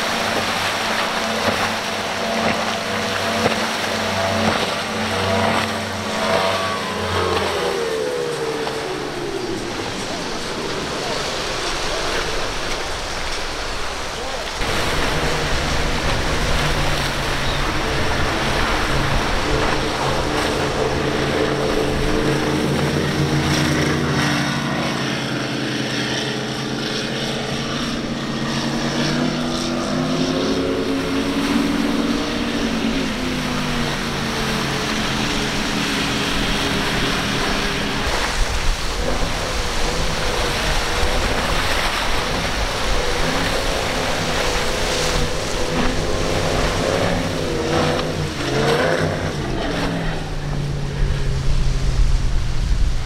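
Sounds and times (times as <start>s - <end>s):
powerboat engines running hard: 0.0s - 53.0s
rush of spray and water: 0.0s - 53.0s
wind: 0.0s - 53.0s.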